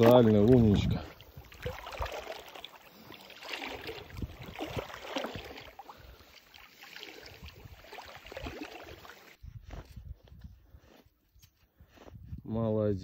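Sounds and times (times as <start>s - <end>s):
dog splashing through water: 0.0s - 9.4s.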